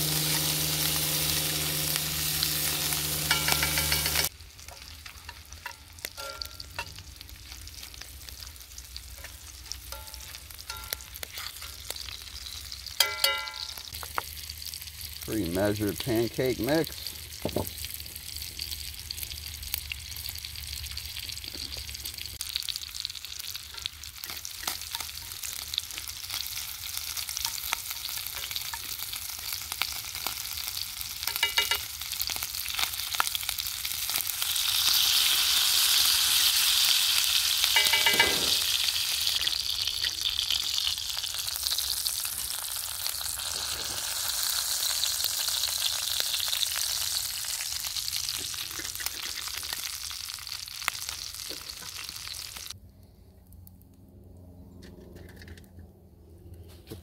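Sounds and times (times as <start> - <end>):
stirring in skillet: 0.0 - 7.0
food sizzling in skillet: 0.0 - 15.3, 16.9 - 52.8.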